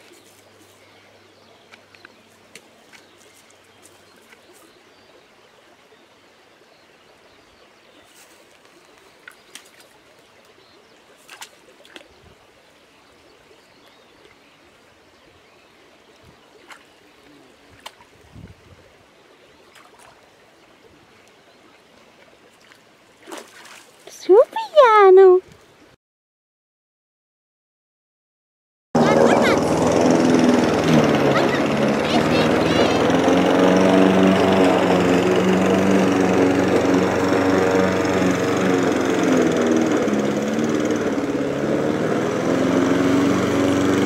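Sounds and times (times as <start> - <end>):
stream trickling: 0.0 - 25.9
dog splashing through water: 8.3 - 10.2, 11.2 - 12.2, 19.7 - 20.3, 22.5 - 24.2.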